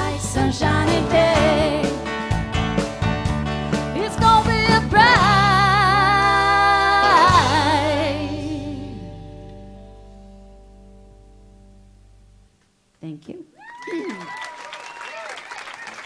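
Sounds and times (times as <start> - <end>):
women singing: 0.0 - 2.1, 3.9 - 9.2
live band playing: 0.0 - 10.5.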